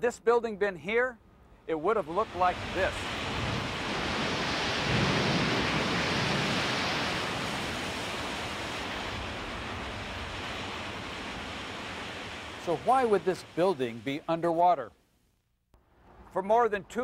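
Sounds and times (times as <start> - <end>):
rushing water: 1.9 - 14.8.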